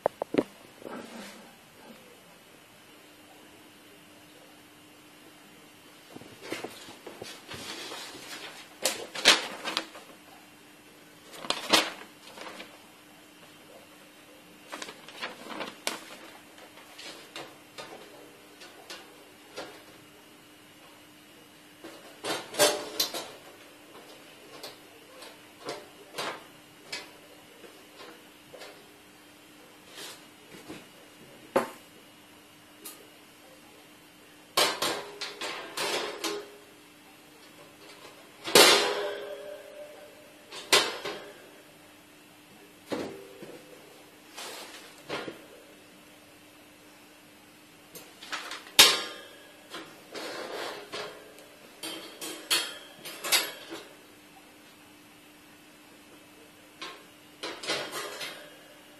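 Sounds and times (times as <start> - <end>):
sheet metal grill clanking: 38.5 - 39.8.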